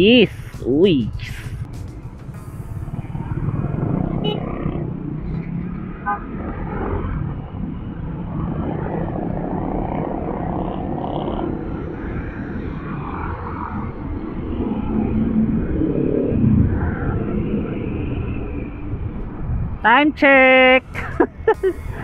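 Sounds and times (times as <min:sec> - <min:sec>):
scooter engine and road rumble: 0:00.0 - 0:17.8
short horn beep: 0:04.2 - 0:04.4.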